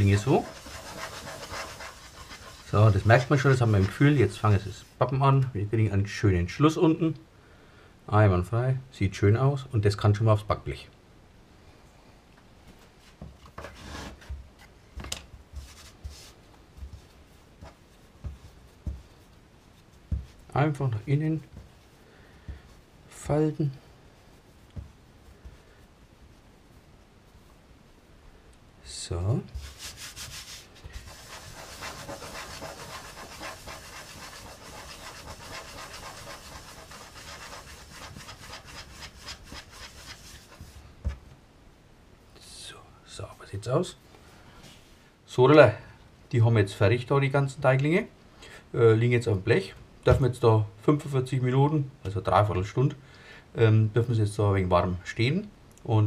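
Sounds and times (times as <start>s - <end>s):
hands kneading bread dough: 0.0s - 5.0s, 12.7s - 28.2s, 28.9s - 41.3s.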